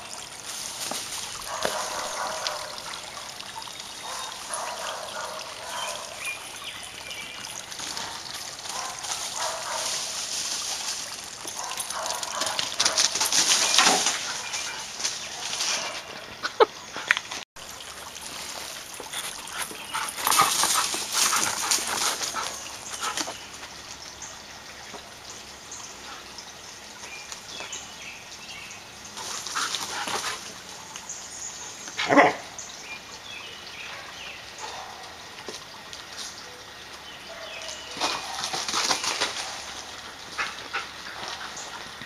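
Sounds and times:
dog barking: 1.5s - 2.9s, 4.0s - 6.2s, 8.0s - 10.0s, 11.6s - 13.2s, 32.0s - 32.5s, 33.9s - 35.2s
dog scuffling in wood chips: 8.7s - 16.1s.

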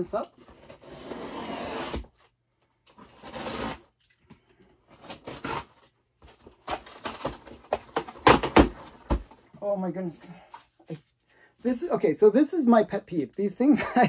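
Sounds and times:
packing tape tearing: 4.9s - 9.0s.

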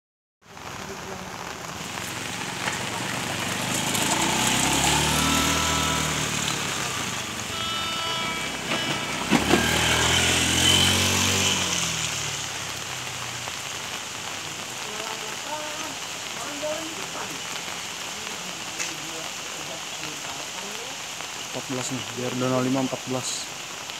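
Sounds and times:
heavy rain hissing: 0.4s - 23.9s
vehicle passing close by: 1.9s - 14.2s.

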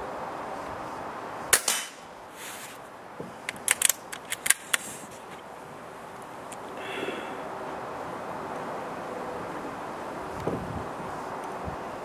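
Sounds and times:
air rifle shot: 1.5s - 2.1s
metallic clicks of rifle cocking: 3.5s - 4.9s.

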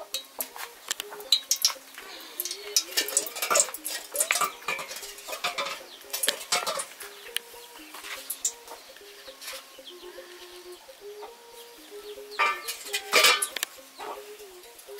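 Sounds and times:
metal pot and utensils clinking: 0.0s - 8.8s, 12.4s - 13.8s.

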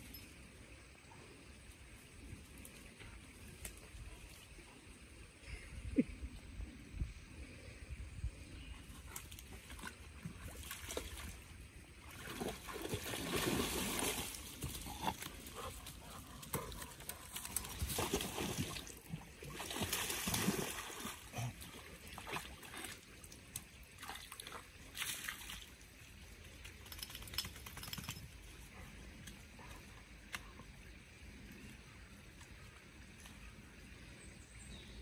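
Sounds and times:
dog splashing through water: 9.2s - 23.1s.

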